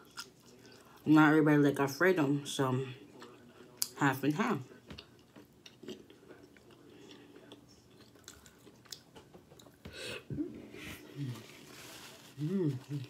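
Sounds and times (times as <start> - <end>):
close chewing food: 0.0 - 1.0, 4.7 - 10.0.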